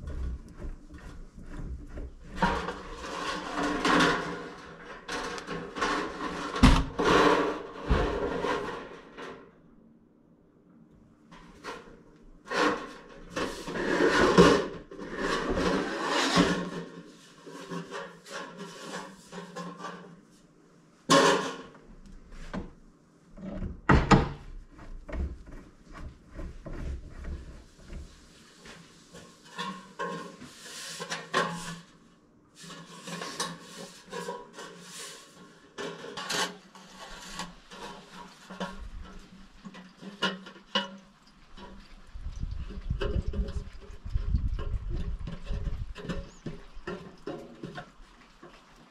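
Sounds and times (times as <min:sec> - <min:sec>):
sheet metal clanking and scraping: 0:00.0 - 0:09.6, 0:25.1 - 0:32.0, 0:32.6 - 0:48.1.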